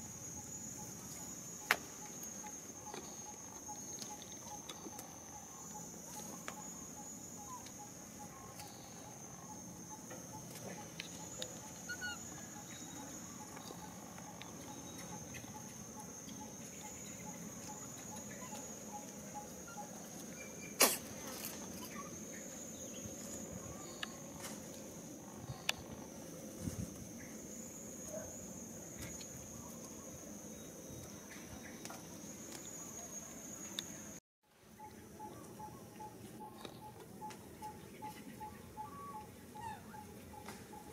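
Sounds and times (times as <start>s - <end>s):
high-pitched insect drone: 0.0s - 34.2s.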